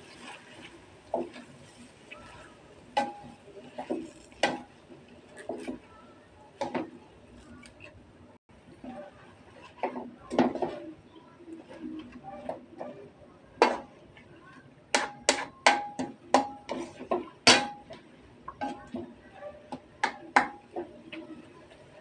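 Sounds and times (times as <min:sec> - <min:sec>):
wok ringing: 0:02.9 - 0:03.5
spatula clacking against metal wok: 0:13.6 - 0:14.0, 0:14.9 - 0:19.0, 0:19.7 - 0:21.2.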